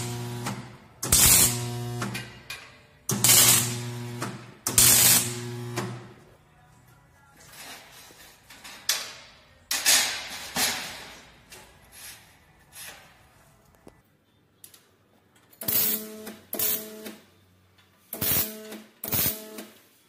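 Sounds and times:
electrical hum: 0.0s - 2.2s, 3.1s - 6.2s
welding arc crackling: 0.0s - 2.2s, 3.1s - 5.9s, 15.6s - 17.2s, 18.2s - 19.6s.

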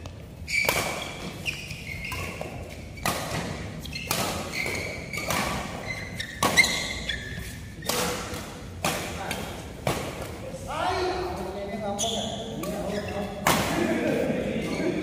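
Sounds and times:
shoes squeaking on court: 0.0s - 8.6s, 11.2s - 13.5s, 14.1s - 15.0s
rackets hitting shuttlecock: 2.0s - 7.0s, 7.8s - 10.4s.

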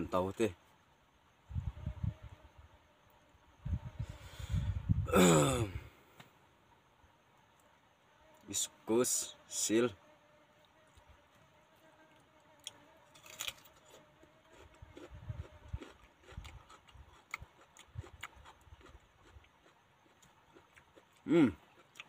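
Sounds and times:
short vocal sound: 4.6s - 6.0s
chewing raw vegetables: 12.7s - 22.0s.

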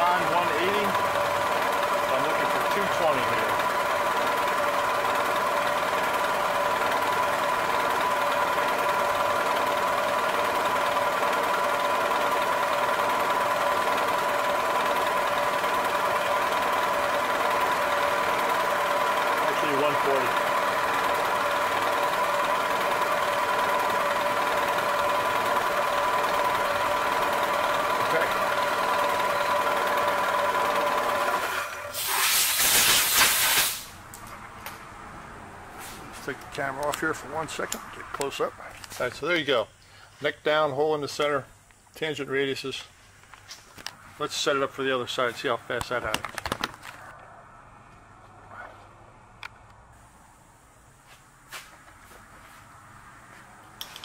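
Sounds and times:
milling machine whining: 0.0s - 32.2s
compressed air blow gun hissing: 31.9s - 34.0s.

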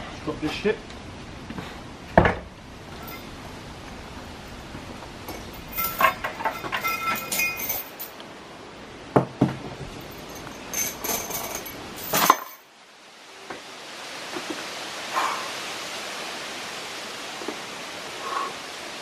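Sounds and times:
metal chain clinking: 3.0s - 3.3s, 5.3s - 8.2s, 10.0s - 12.7s.

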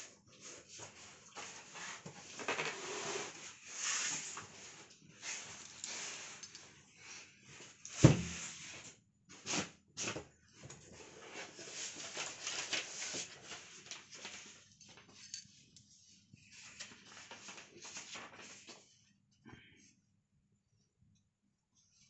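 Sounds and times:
rustling packing: 11.0s - 14.7s.

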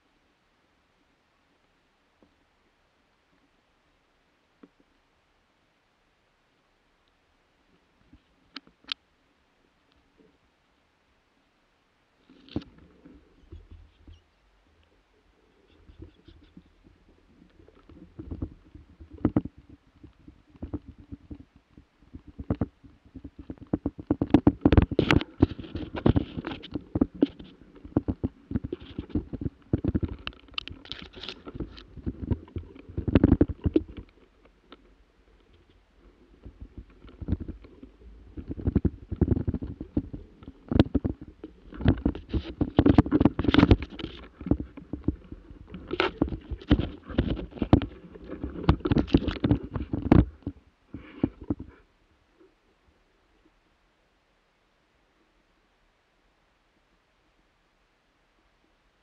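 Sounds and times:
rustling and knocking on microphone: 12.3s - 14.3s, 15.6s - 51.8s.

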